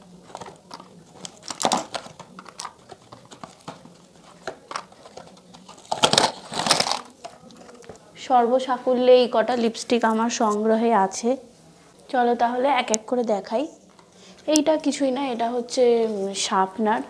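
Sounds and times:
foil crinkling: 0.0 - 7.9
plastic tubes clicking and clattering: 0.3 - 8.0.

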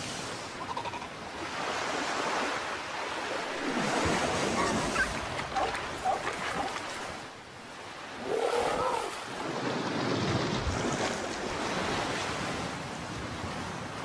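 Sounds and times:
seal pup calling: 0.6 - 1.2
surf washing over beach: 1.3 - 14.0.

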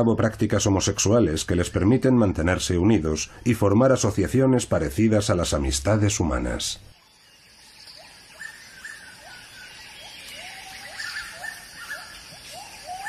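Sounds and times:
forest ambience hiss: 0.0 - 13.0
animal calls sweeping upward: 8.0 - 13.0.

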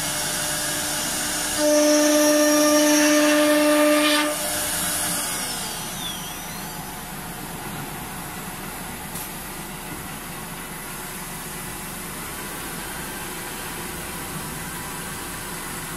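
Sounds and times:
wood router whine and hum: 0.0 - 8.2.

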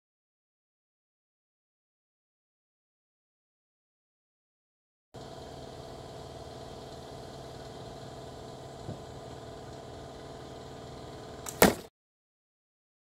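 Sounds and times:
engine hum: 5.2 - 11.9
slingshot shot crack: 11.4 - 11.9.

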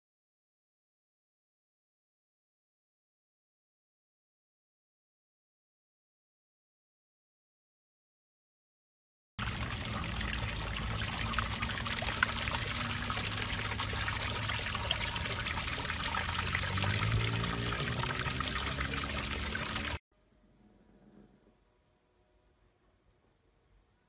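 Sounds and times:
water jet splashing into a tub: 9.4 - 20.0.

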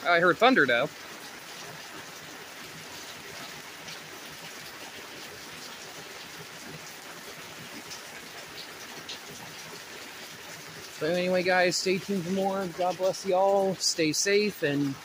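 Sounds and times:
water dripping: 0.0 - 15.0
heavy rain hissing: 9.4 - 15.0.

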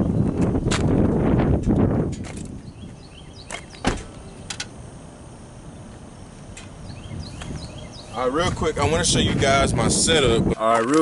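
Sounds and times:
car door thump: 3.5 - 4.2
car door latch click: 3.5 - 4.7.

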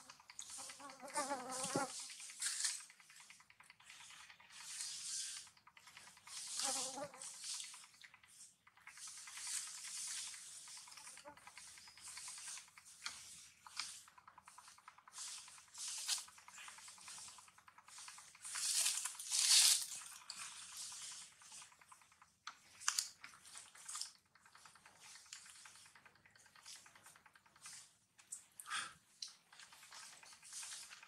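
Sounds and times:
rustling over dry leaves: 18.4 - 20.1.

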